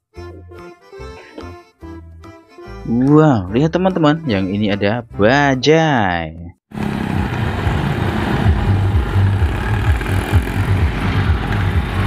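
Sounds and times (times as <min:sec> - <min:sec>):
auto-rickshaw engines passing: 0:06.7 - 0:12.0.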